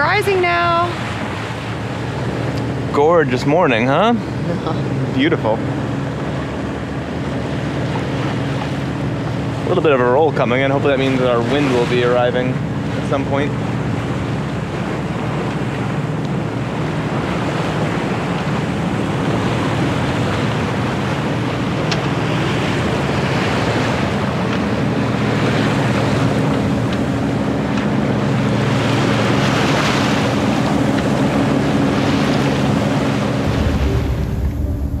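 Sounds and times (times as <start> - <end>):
steady low hum: 0.0 - 35.0
water splashing along hull: 0.0 - 35.0
wind on microphone: 11.0 - 35.0.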